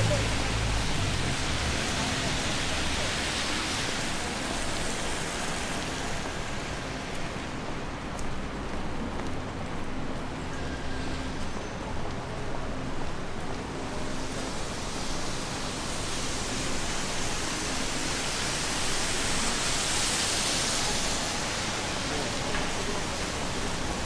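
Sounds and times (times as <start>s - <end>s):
rain on wet street: 0.0s - 24.0s.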